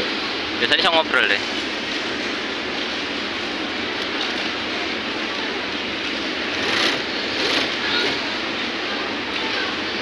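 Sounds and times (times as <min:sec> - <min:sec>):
sewing machines whirring: 0:04.2 - 0:10.0.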